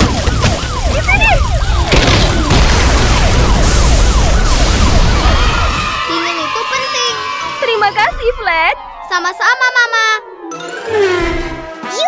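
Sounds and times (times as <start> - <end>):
fire engine siren: 0.0 - 7.6.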